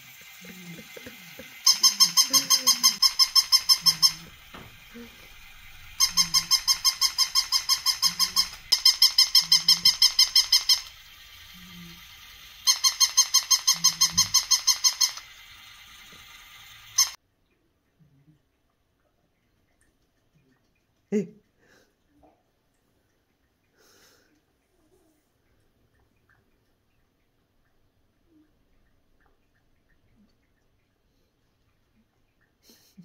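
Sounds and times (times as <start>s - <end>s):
toy puppy electronic yips: 0.2s - 17.2s.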